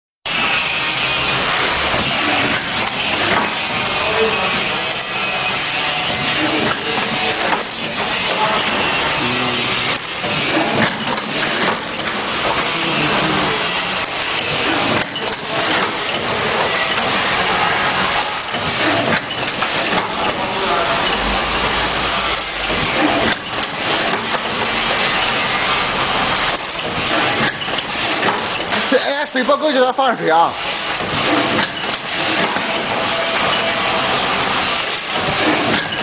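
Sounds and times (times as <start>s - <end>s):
packaging machine clattering: 10.0s - 21.2s, 22.3s - 29.7s, 30.7s - 36.0s.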